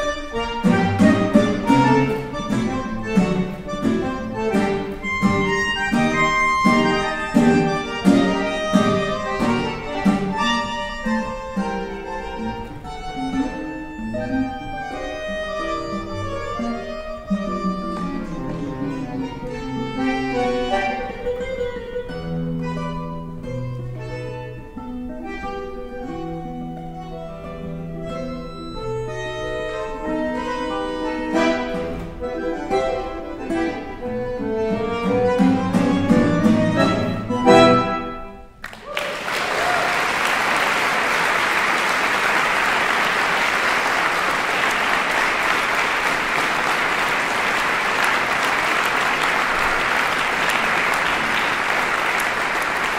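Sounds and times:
bandoneon and guitar duo: 0:00.0 - 0:38.6
audience applause: 0:38.6 - 0:52.9.

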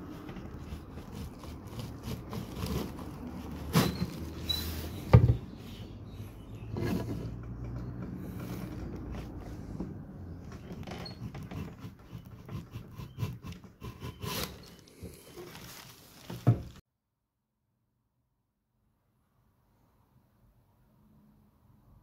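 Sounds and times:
woodcarving tools clicking and scraping: 0:00.0 - 0:05.1, 0:06.4 - 0:15.4.

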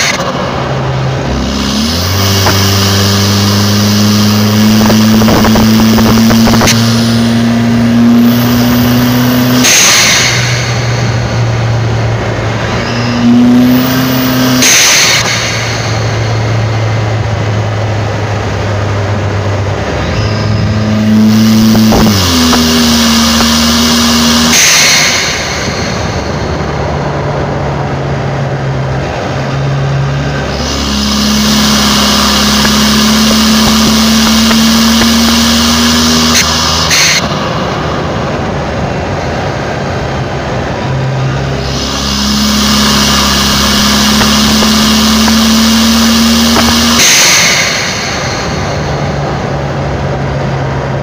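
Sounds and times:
car engine accelerating: 0:00.0 - 0:51.0
turbo blow-off valve hiss: 0:20.0 - 0:26.7, 0:30.5 - 0:37.3, 0:41.6 - 0:49.3.

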